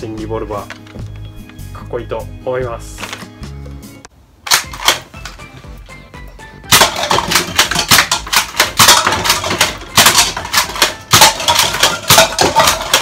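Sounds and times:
toy blaster clacking and snapping: 4.5 - 5.1, 6.7 - 13.0
darts clattering against plastic: 6.7 - 13.0.

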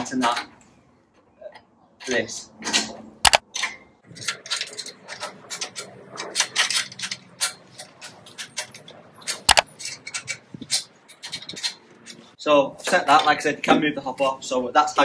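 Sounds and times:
spanner clicking on bolts: 2.0 - 12.3.

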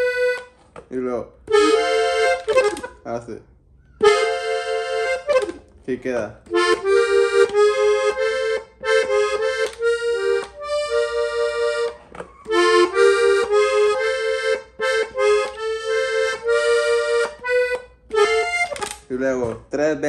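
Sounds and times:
button accordion melody: 0.0 - 0.6, 1.4 - 3.0, 4.0 - 19.0.

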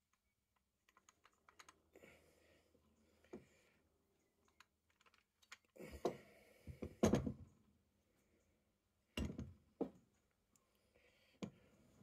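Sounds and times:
metal parts clicking and knocking: 0.5 - 1.8, 4.4 - 5.8.

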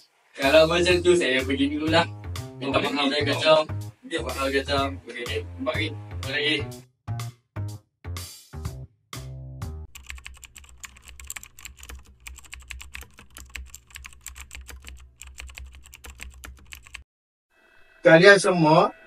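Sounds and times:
keyboard typing clicks: 9.9 - 17.0.

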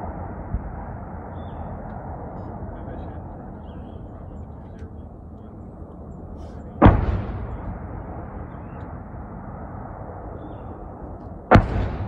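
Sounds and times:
rumbling echo: 0.0 - 12.0
artillery boom: 6.6 - 12.0.

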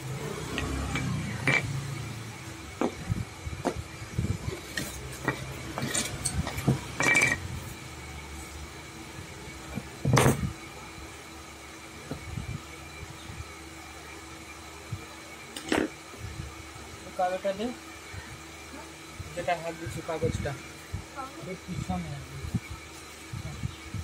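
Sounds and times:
faint steady hum: 0.0 - 24.0
knocks and clinks: 0.5 - 1.8, 4.8 - 7.5.

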